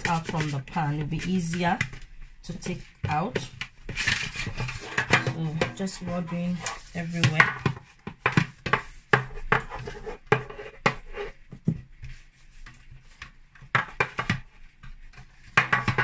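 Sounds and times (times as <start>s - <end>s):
metal tray knocking on worktop: 4.8s - 6.1s.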